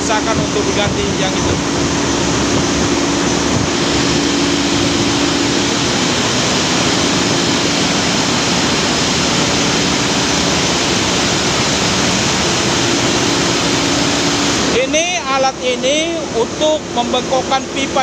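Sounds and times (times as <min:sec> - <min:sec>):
low hum: 0:00.0 - 0:17.0
engine room machinery din: 0:00.0 - 0:18.0.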